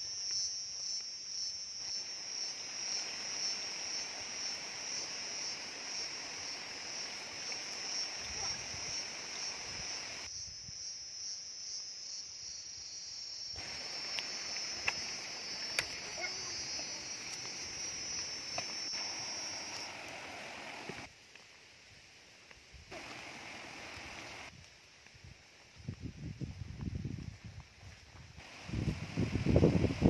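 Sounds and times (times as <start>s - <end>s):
insects chirring: 0.0s - 21.8s, 22.9s - 24.9s.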